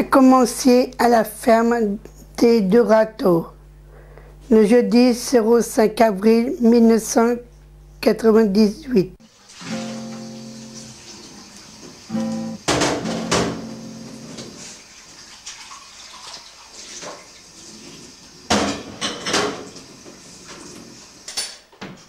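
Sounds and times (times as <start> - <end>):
tap water running: 9.2 - 21.4.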